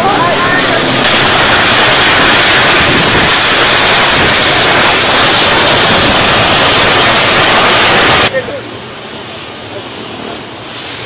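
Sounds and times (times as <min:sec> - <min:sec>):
static hiss: 0:00.0 - 0:08.6.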